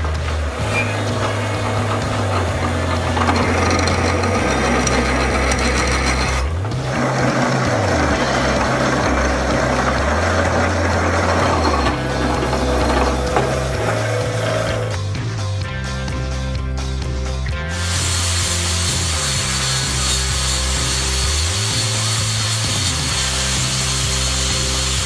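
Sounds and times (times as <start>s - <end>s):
drill bit scraping through metal: 0.0s - 15.0s, 17.7s - 25.0s
drill press motor hum: 0.0s - 15.0s.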